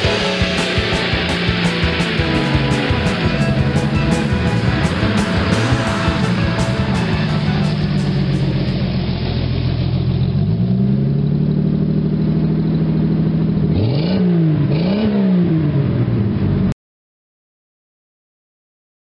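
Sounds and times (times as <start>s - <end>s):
car engine revving: 0.0s - 16.7s.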